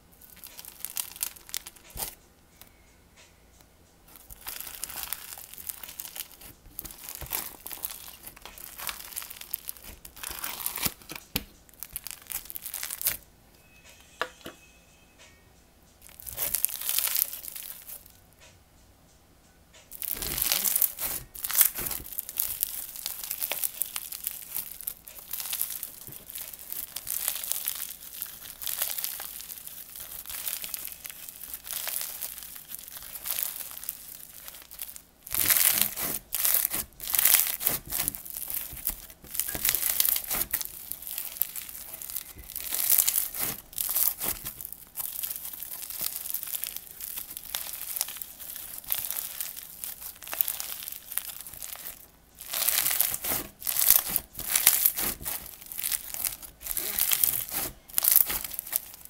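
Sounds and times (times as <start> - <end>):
slime crackling and popping: 0.0 - 2.7, 4.1 - 13.2, 16.0 - 18.2, 19.9 - 59.0.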